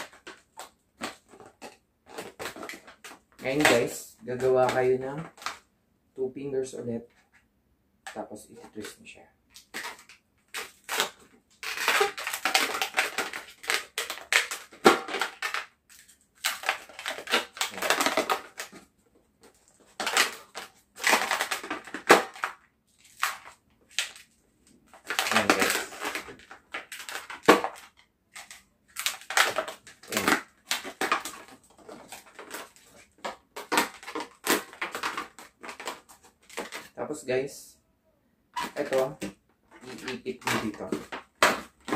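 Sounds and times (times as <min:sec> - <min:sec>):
balloons rubbing and squeaking: 0:10.5 - 0:15.5, 0:16.5 - 0:18.9, 0:24.9 - 0:27.5, 0:29.0 - 0:37.0, 0:38.6 - 0:41.9.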